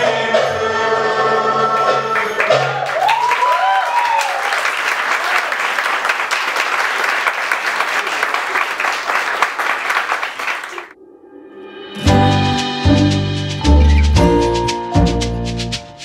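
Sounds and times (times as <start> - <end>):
audience clapping: 2.2 - 11.0
whooping cheers: 2.3 - 5.8.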